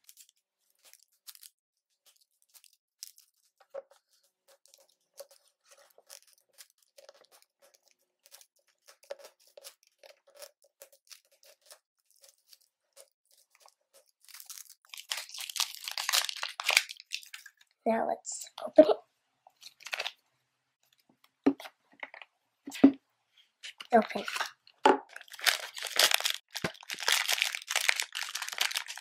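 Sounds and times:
plastic package scratching and rustling: 0:00.0 - 0:17.6, 0:19.6 - 0:20.2, 0:24.1 - 0:29.0.

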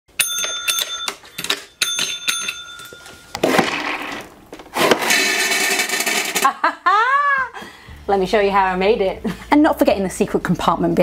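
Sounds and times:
desk call bell ringing: 0:00.1 - 0:03.4.

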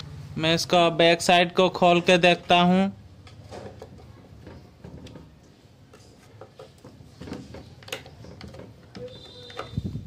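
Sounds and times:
clicks and knocks of handling: 0:03.2 - 0:09.9.

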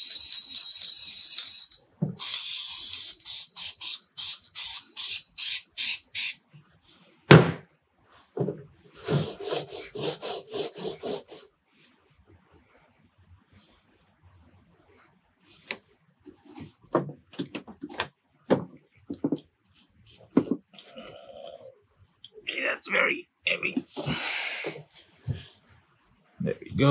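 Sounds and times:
aerosol can spraying: 0:00.0 - 0:06.4
scuffing rubbing strokes: 0:09.0 - 0:11.4.

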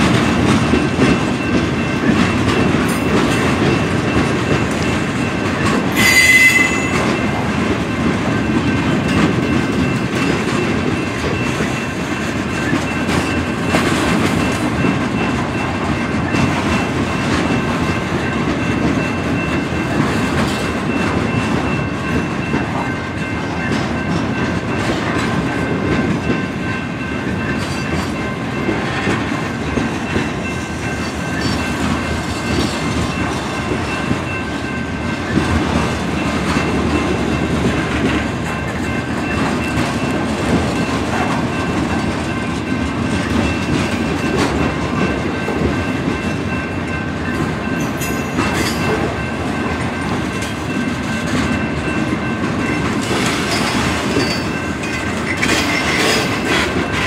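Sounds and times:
freight train rumbling past: 0:00.0 - 0:57.0
wheels clacking over rail joints: 0:00.0 - 0:57.0
high metallic squeal: 0:06.0 - 0:07.0.

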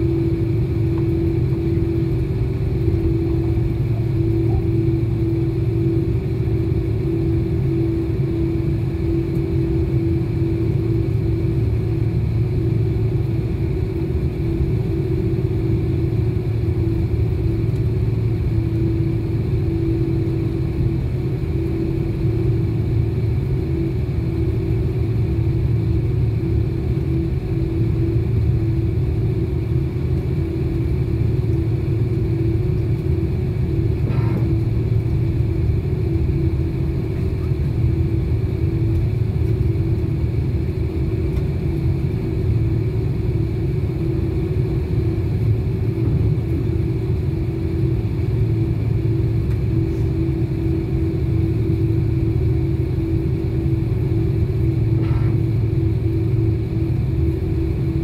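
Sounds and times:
jet engines droning: 0:00.0 - 0:58.0.

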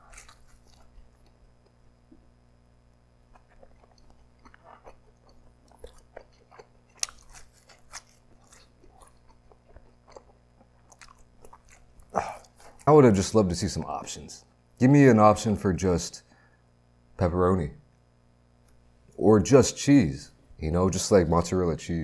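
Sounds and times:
person chewing crusty pizza: 0:00.0 - 0:02.2, 0:03.2 - 0:14.0.

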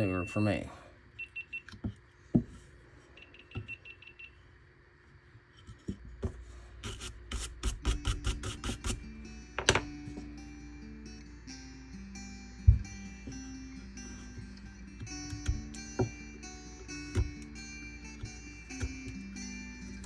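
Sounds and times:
light knocks on wood block: 0:12.7 - 0:13.0.

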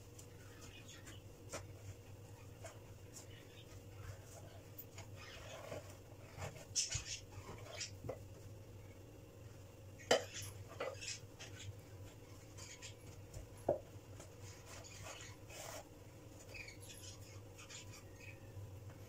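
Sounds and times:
hands kneading dough: 0:00.0 - 0:08.6.

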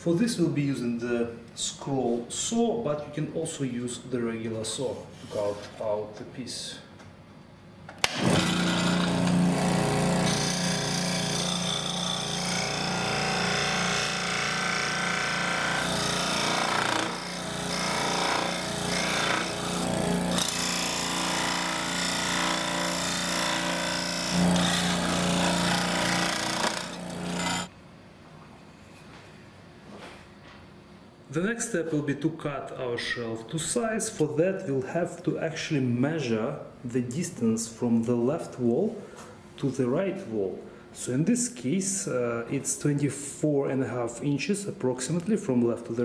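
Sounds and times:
scroll saw cutting wood: 0:08.0 - 0:27.7.

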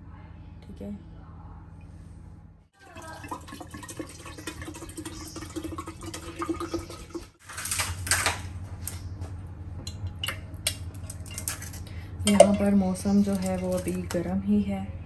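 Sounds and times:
water pouring into a jug: 0:02.8 - 0:07.4.

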